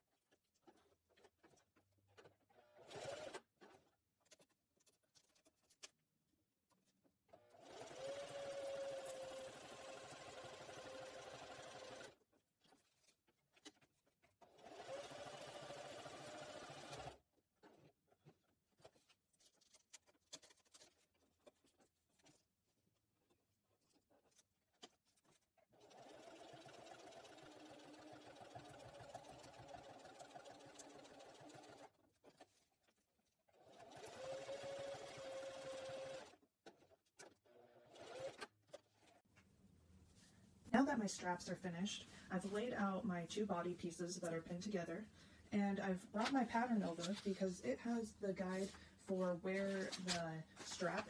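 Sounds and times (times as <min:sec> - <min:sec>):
sewing machine running: 0:02.5 - 0:03.4, 0:07.4 - 0:12.2, 0:14.4 - 0:17.2, 0:25.8 - 0:32.0, 0:33.5 - 0:36.4, 0:37.6 - 0:38.5
fabric rustling: 0:48.4 - 0:51.0.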